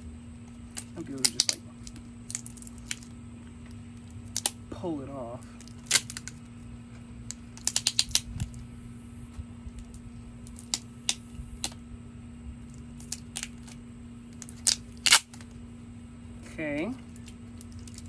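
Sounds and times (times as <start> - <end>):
knife cutting tape and plastic: 0.7 - 3.1, 4.3 - 4.6, 5.5 - 6.4, 7.3 - 8.6, 9.7 - 11.8, 13.0 - 15.5.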